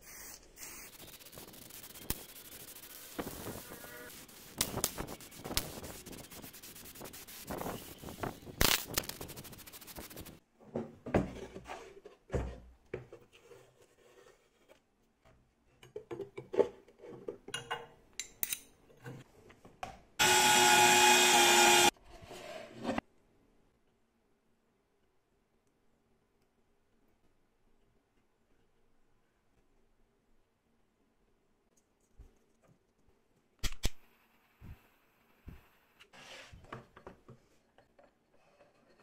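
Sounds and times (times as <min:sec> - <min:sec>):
spray paint hissing: 0:00.0 - 0:10.4.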